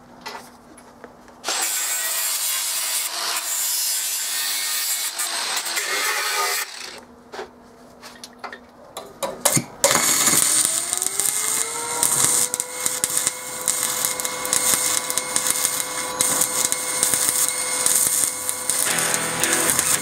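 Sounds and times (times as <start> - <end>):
angle grinder: 1.4 - 7.0, 9.9 - 20.0
welding arc crackling: 9.8 - 20.0
high whine: 9.9 - 20.0.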